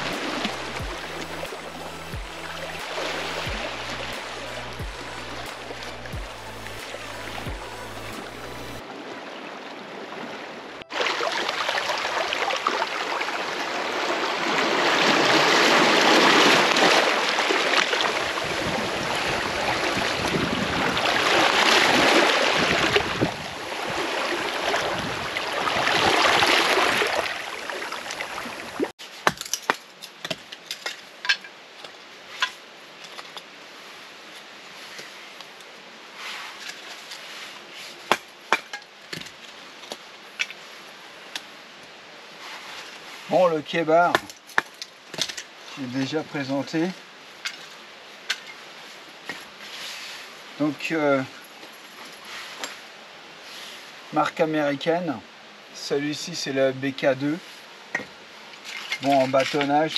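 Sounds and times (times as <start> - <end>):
wood being struck and split: 29.2 - 30.9, 38.1 - 39.4.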